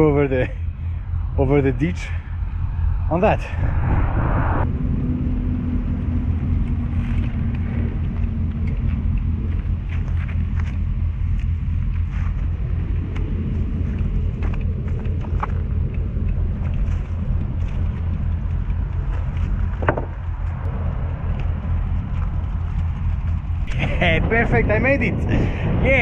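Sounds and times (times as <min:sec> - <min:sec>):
highway traffic rumble: 0:00.0 - 0:26.0
trike knocking over wooden planks: 0:19.8 - 0:20.2.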